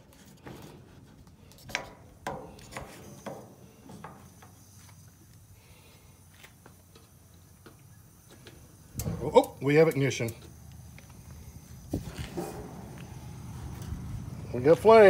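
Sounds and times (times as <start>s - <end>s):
knocks and clicks on metal grill: 1.7s - 4.3s.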